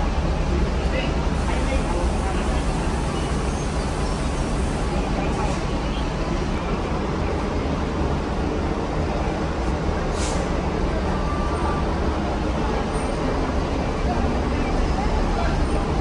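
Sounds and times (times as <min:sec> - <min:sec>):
bus diesel engine rumbling: 0:00.0 - 0:16.0.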